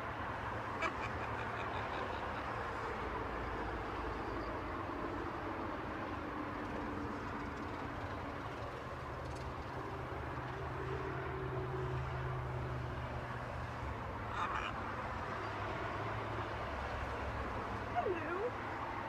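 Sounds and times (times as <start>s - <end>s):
outdoor background rumble: 0.0s - 19.0s.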